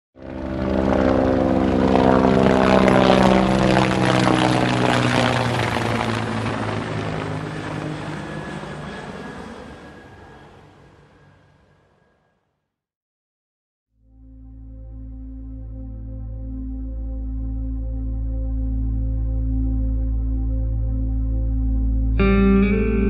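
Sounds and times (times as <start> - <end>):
propeller aircraft droning: 0.2 - 12.1.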